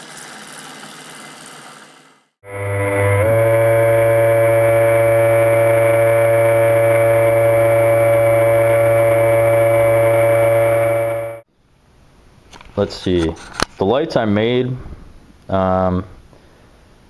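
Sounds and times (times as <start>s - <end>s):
underwater thruster motors whining: 2.4s - 11.4s.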